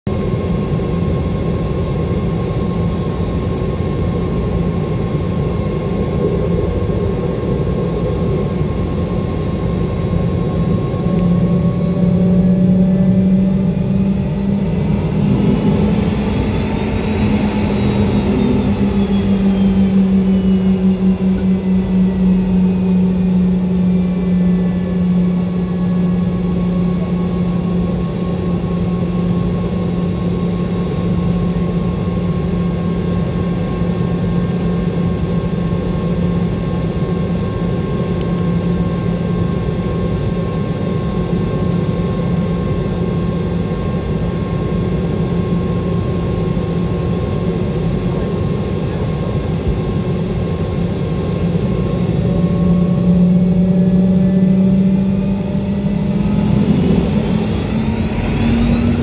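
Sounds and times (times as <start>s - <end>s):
jet engines running: 0.1s - 59.0s
jet passing whoosh: 13.2s - 22.3s, 54.5s - 59.0s.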